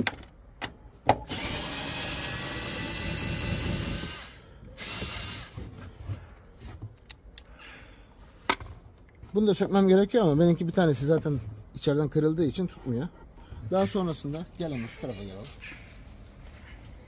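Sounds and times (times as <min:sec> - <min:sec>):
power drill spinning: 0:01.2 - 0:05.7.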